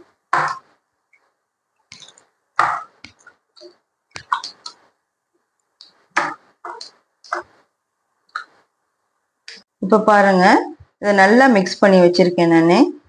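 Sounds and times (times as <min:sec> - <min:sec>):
wet squishes of kneading meat: 0:00.0 - 0:08.8.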